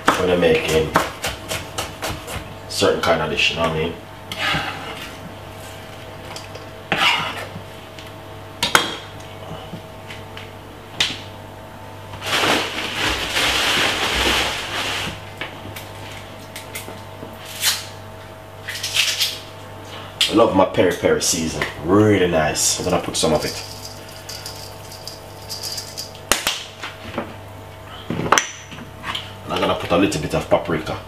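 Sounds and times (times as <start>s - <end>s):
knife clinking on metal bowl: 23.4s - 26.2s.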